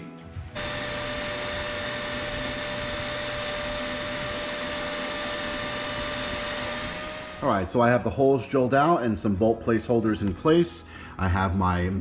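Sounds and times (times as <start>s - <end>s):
vacuum cleaner running: 0.4s - 7.8s.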